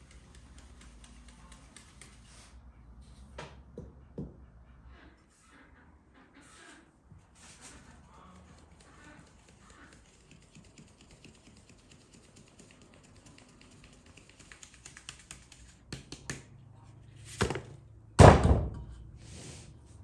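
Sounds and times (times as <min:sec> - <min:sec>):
hand tapping sieve: 0:00.0 - 0:02.3
flour being sifted: 0:00.0 - 0:03.2, 0:07.3 - 0:15.8.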